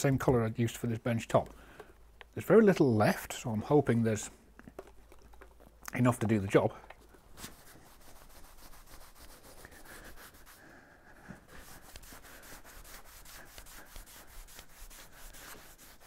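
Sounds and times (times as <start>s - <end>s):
rag wiping wooden board: 7.4s - 10.6s, 11.4s - 16.0s.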